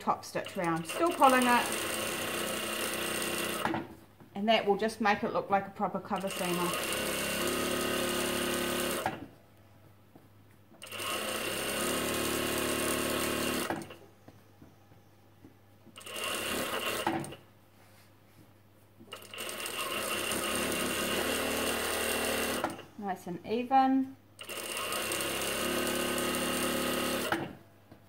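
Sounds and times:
sewing machine stitching: 0.0 - 4.0, 6.0 - 9.3, 10.8 - 14.0, 16.0 - 17.4, 19.1 - 22.9, 24.4 - 27.6.

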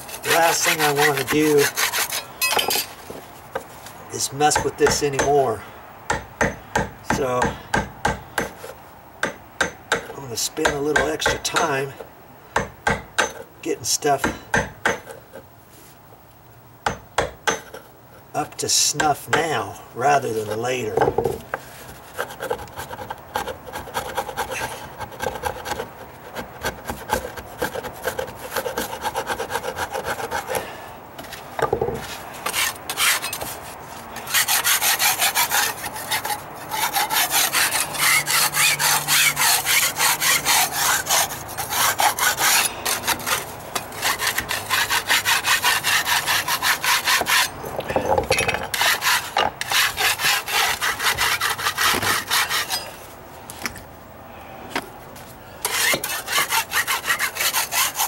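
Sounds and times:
hand rasp filing wood: 0.0 - 2.3, 21.6 - 30.6, 32.5 - 33.6, 34.2 - 47.5, 48.7 - 52.9, 55.6 - 58.0.

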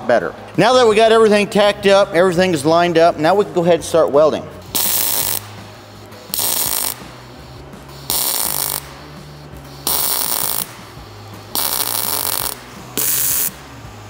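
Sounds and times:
welding arc bursts: 4.6 - 13.8.

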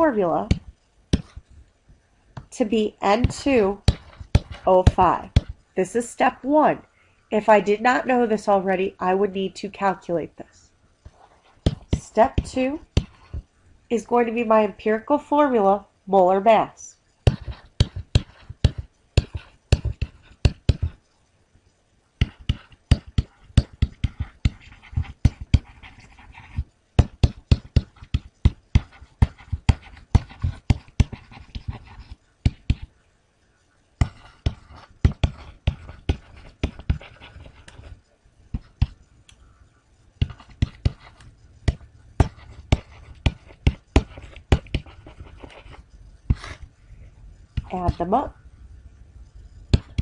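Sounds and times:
stylus tapping and scratching: 0.0 - 5.6, 11.0 - 13.6, 17.2 - 21.2, 22.2 - 33.0, 34.0 - 46.7, 47.4 - 48.4, 49.3 - 50.0.

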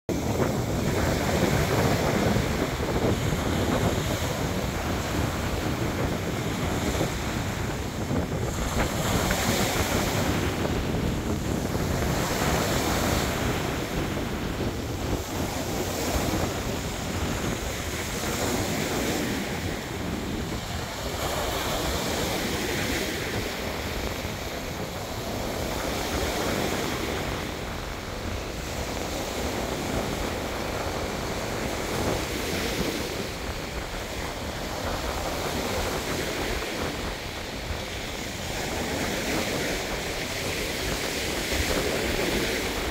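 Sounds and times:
waves breaking on beach: 0.1 - 42.9
wind buffeting microphone: 0.1 - 42.9.

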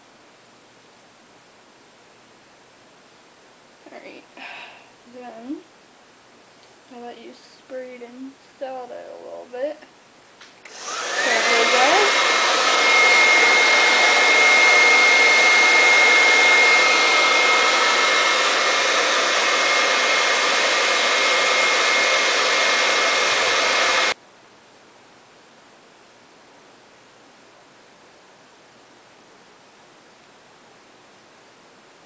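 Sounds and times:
hair dryer blowing with whine: 10.6 - 24.2.

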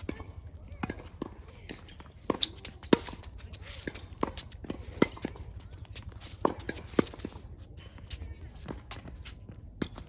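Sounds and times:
ball bouncing: 0.0 - 7.4
rackets striking tennis ball: 0.0 - 10.0
shuffling footsteps: 0.0 - 10.0.

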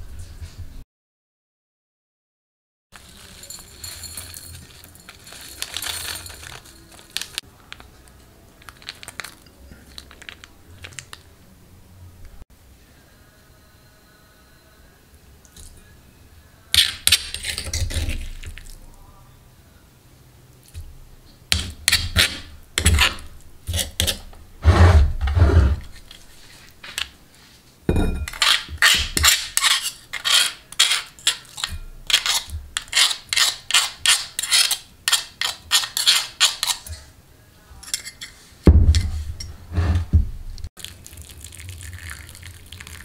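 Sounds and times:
spoon clinking on bowl rim: 3.0 - 7.3
metal spoon scraping mortar: 3.0 - 7.5, 16.7 - 18.8, 21.5 - 26.7, 28.0 - 37.1, 37.8 - 40.1.

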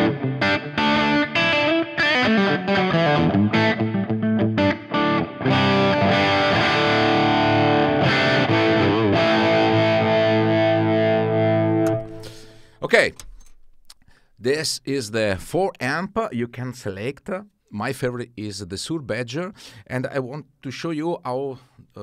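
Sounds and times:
distorted electric guitar chords: 0.0 - 13.4.

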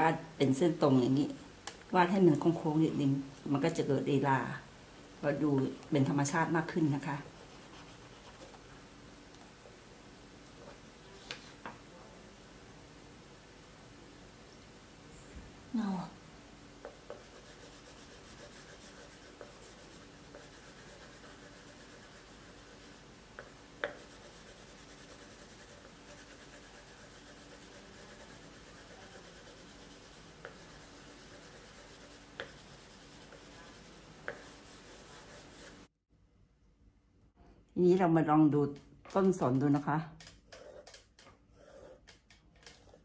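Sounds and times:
drawing strokes on paper: 7.2 - 8.5, 16.8 - 35.9, 40.5 - 43.0.

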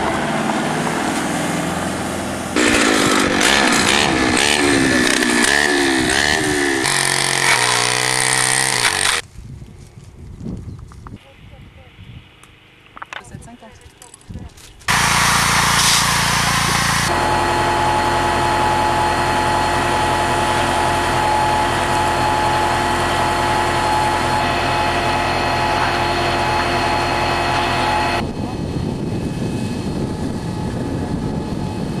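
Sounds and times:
engine drone: 0.0 - 9.2, 14.8 - 32.0
pressurised spray hissing: 14.9 - 17.1.

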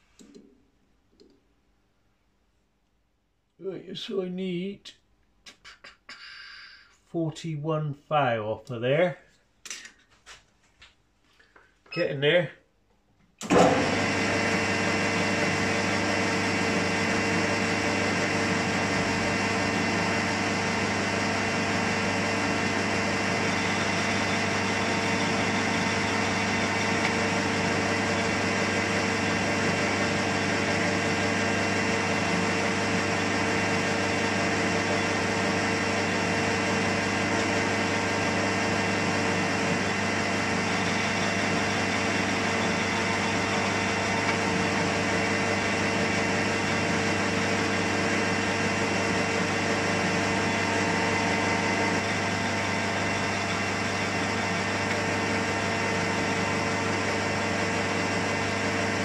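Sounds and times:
metal lathe running: 13.4 - 59.0.

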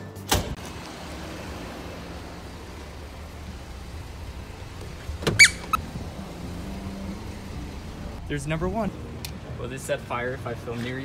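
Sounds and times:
low outdoor rumble: 0.6 - 11.0
high squeak of door handle: 5.2 - 5.8.

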